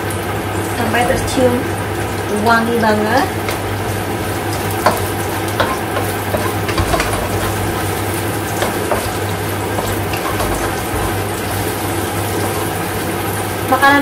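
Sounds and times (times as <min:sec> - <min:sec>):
onion sizzling in hot oil: 0:00.0 - 0:14.0
wooden spatula scraping wok: 0:03.4 - 0:12.8.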